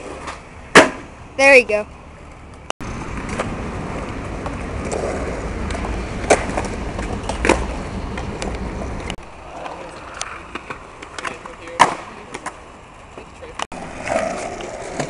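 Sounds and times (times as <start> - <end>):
skateboard wheels rolling on concrete: 0.0 - 15.0
skateboard clacks: 3.0 - 15.0.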